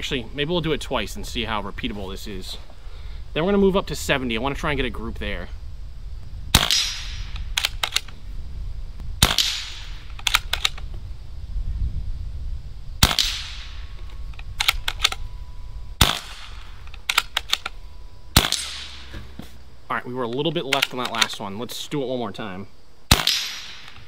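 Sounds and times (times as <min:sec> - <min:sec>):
air rifle shots: 0:06.5 - 0:08.2, 0:09.2 - 0:10.8, 0:13.0 - 0:13.9, 0:16.0 - 0:19.4, 0:23.1 - 0:24.0
rifle bolt clicks: 0:07.3 - 0:08.2, 0:10.1 - 0:10.8, 0:14.3 - 0:15.2, 0:16.8 - 0:17.8, 0:20.7 - 0:21.4.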